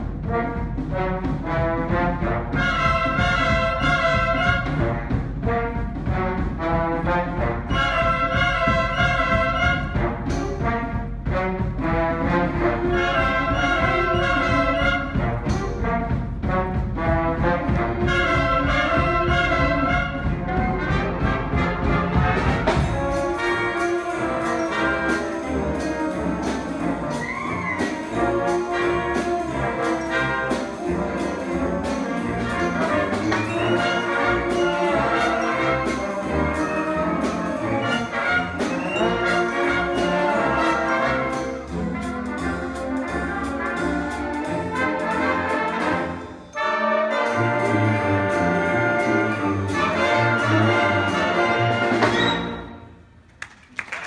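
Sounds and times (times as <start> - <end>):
drum beat: 0.0 - 45.9
concert band playing swing: 0.0 - 54.0.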